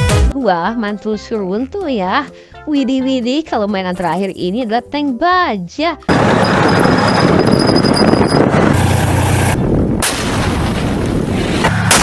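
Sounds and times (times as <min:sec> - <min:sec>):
tank engine and tracks: 0:06.1 - 0:12.0
tank gun blast: 0:08.7 - 0:12.0.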